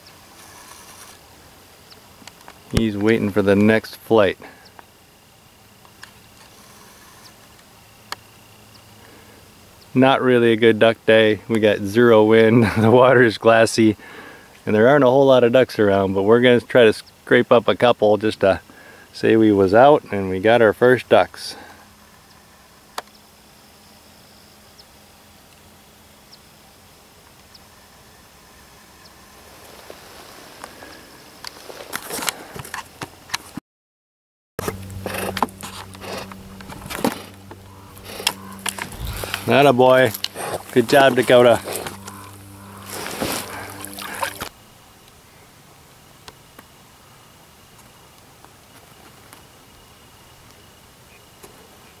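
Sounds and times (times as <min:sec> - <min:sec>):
faint steady hiss: 0:00.0 - 0:33.4, 0:35.1 - 0:52.0
small ticks: 0:35.1 - 0:45.2
water splashing and sloshing: 0:41.8 - 0:44.5.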